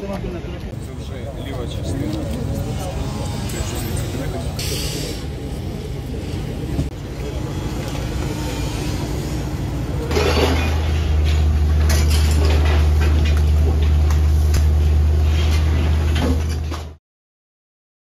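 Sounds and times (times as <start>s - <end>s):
crowd murmur: 0.0s - 11.9s
engine running rumble: 0.6s - 17.0s
metal and glass debris clattering: 10.1s - 13.4s.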